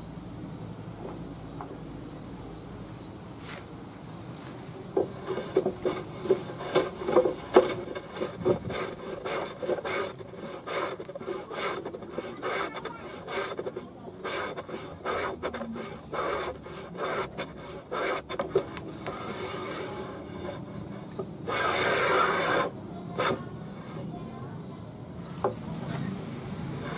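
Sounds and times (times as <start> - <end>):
hand plane shaving wood: 5.0 - 24.5, 26.3 - 26.9.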